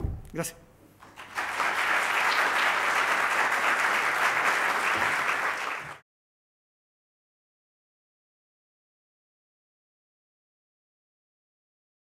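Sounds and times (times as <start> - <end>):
audience applauding: 1.0 - 6.0.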